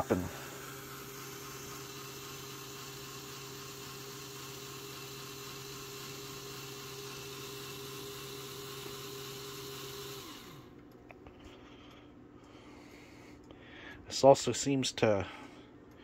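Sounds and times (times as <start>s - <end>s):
electric motor whining: 0.0s - 10.7s.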